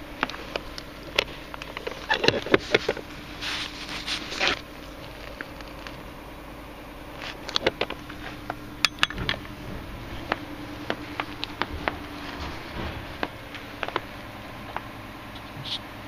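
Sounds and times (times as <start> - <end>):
faint steady hum: 0.0 - 16.0
footsteps in snow: 2.6 - 6.0
handling clicks and knocks: 7.2 - 14.9.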